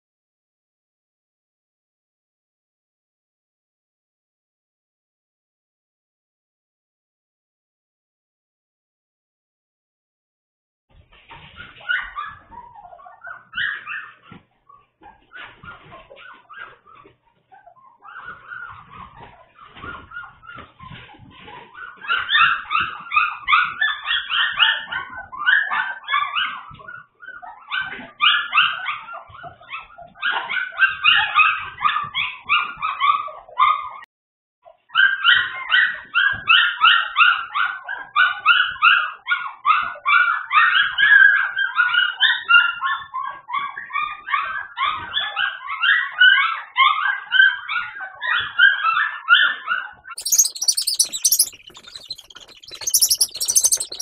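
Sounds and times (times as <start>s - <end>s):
puppies whining and yipping: 11.4s - 34.0s, 35.0s - 54.0s.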